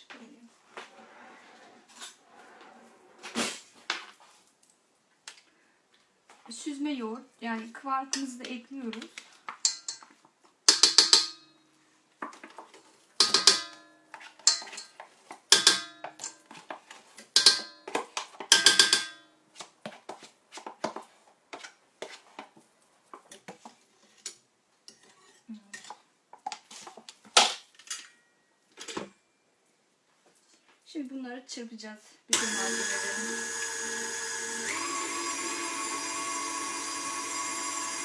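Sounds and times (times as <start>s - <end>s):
spoon clinking on metal bowl: 14.5s - 14.9s.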